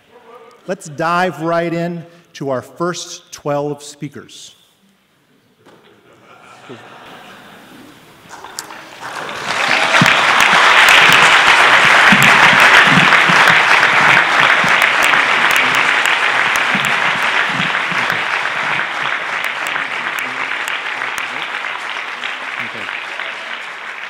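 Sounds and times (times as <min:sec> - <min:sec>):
audience applauding: 0:07.1 - 0:24.0.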